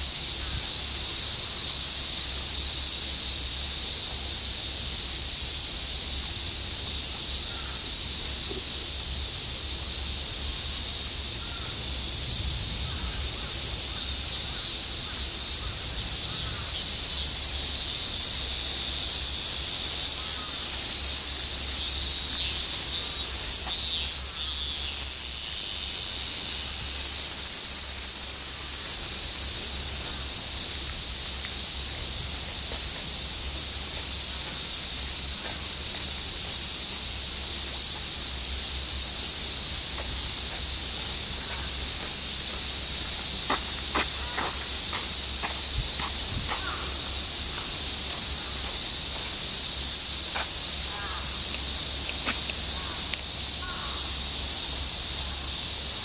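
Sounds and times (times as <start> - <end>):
cicadas chorus: 0.0 - 56.0.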